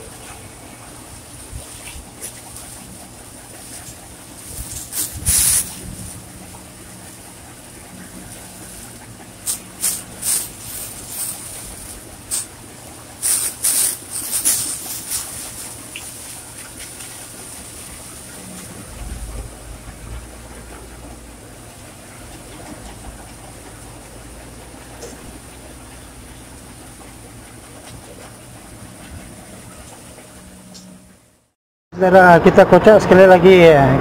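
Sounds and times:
hose water splashing on steel: 0:00.0 - 0:31.0
truck engine hum: 0:00.0 - 0:34.0
deep low rumble: 0:17.9 - 0:21.6.

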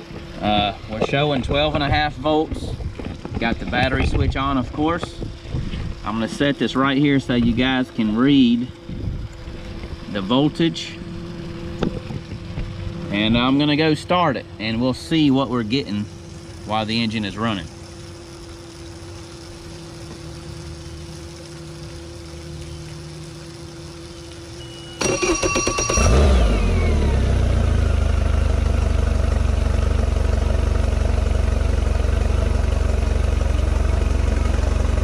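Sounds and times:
faint steady hum: 0:00.0 - 0:35.0
outboard engine idling: 0:00.0 - 0:35.0
electric starter cranking: 0:24.9 - 0:28.6.

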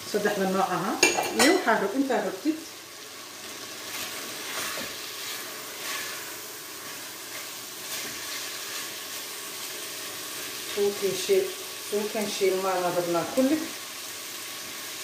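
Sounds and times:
vegetables sizzling in a frying pan: 0:00.0 - 0:15.0
spatula scraping: 0:03.9 - 0:09.2.

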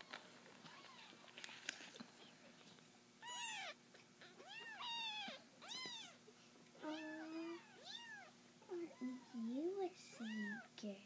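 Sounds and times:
kittens mewing: 0:03.2 - 0:06.2.

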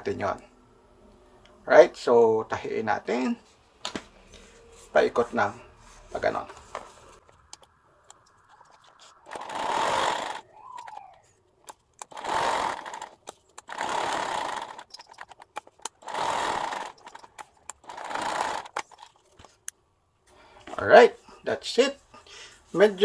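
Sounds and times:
sewing machine stitching denim: 0:09.3 - 0:11.0, 0:12.0 - 0:19.1.

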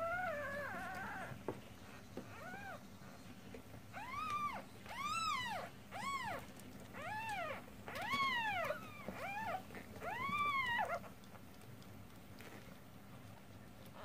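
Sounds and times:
kittens mewing: 0:04.0 - 0:11.2.

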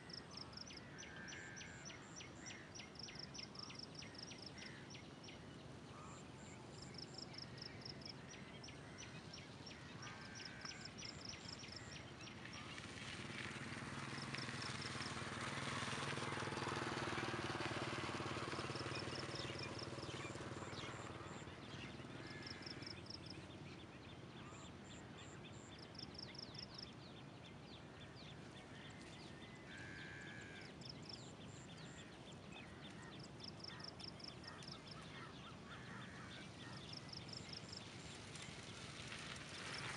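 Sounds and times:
motor vehicle passing: 0:00.0 - 0:24.7, 0:25.6 - 0:39.9
lower calls: 0:28.7 - 0:31.2.

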